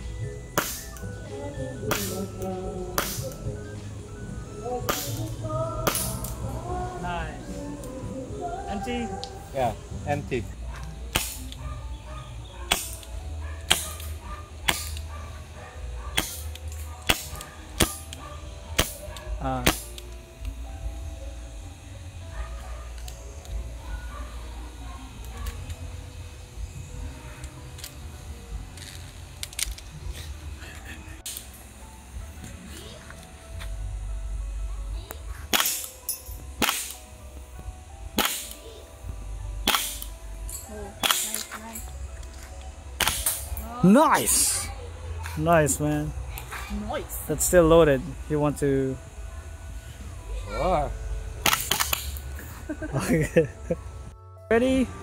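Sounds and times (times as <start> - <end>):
airsoft revolver shots: 0.5 - 1.0, 1.9 - 2.3, 3.0 - 3.4, 4.9 - 6.4, 11.1 - 11.6, 12.7 - 15.1, 16.1 - 18.2, 18.8 - 20.0, 35.5 - 37.1, 38.1 - 38.7, 39.6 - 40.1, 41.0 - 41.5, 43.0 - 43.6, 51.4 - 52.2.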